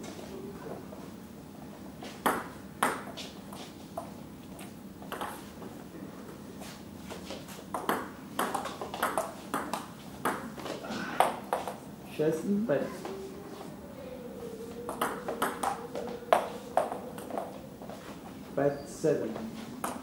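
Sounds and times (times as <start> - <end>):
table tennis ball knocking: 7.7 - 11.8, 14.9 - 17.5.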